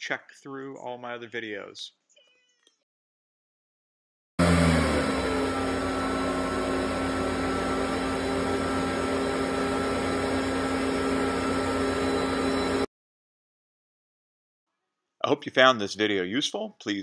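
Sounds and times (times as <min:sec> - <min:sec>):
cooling fans whirring: 0:04.4 - 0:12.9.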